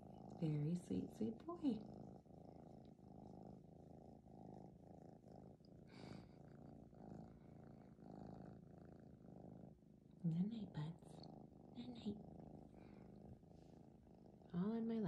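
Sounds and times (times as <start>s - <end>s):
kitten purring: 0.0s - 15.0s.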